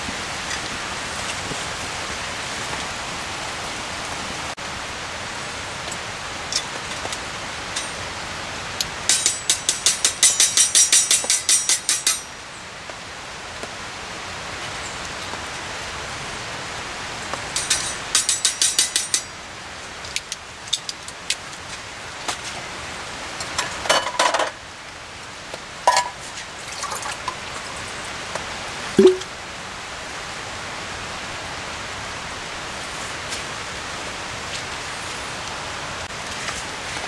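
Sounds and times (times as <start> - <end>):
steady background hiss: 0.0 - 37.0
light metal clinks and knocks: 6.5 - 8.0, 9.1 - 12.3, 17.6 - 19.3
water splashing into steel cup: 26.7 - 27.5, 29.0 - 29.3.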